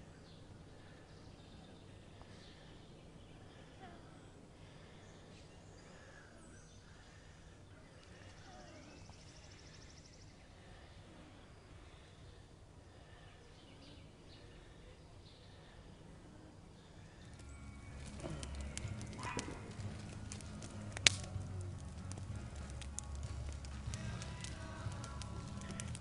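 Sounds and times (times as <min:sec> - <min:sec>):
low steady hum: 0:00.0 - 0:26.0
distant bird chirps: 0:16.6 - 0:20.5.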